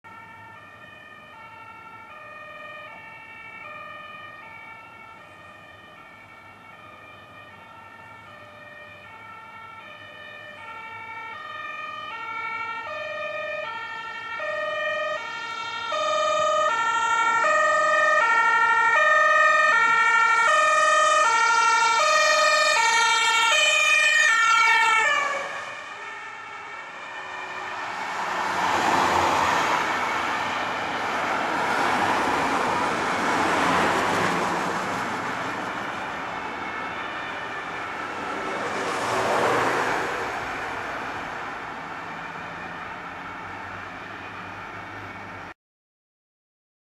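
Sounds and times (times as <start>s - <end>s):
two-tone emergency siren: 0.0s - 45.6s
vehicle rushing past: 23.3s - 45.4s.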